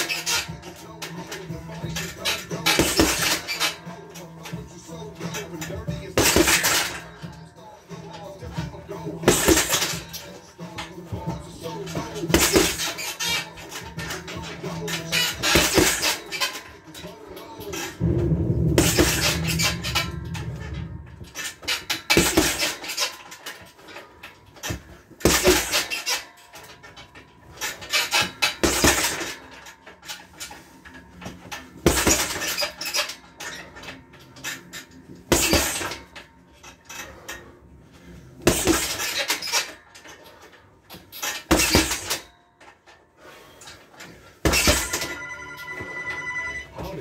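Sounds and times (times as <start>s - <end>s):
boxing gloves punching heavy bag: 1.8s - 3.8s, 5.3s - 7.2s, 8.5s - 10.2s, 10.8s - 16.4s, 17.8s - 23.0s, 24.6s - 26.7s, 27.7s - 29.5s, 31.2s - 33.0s, 35.3s - 36.2s, 38.4s - 39.8s, 41.4s - 42.3s, 44.4s - 45.2s.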